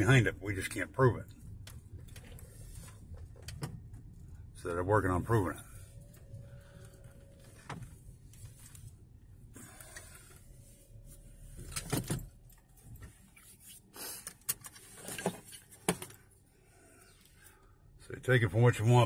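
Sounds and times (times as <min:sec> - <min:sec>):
low rumble in car interior: 0:00.0 - 0:13.7.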